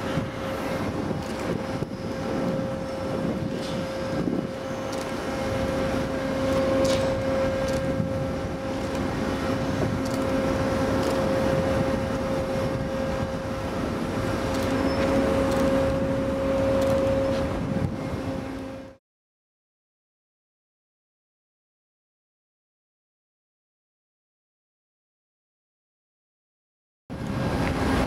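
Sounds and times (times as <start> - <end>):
crane machinery hum with whine: 0.0 - 19.0, 27.1 - 28.0.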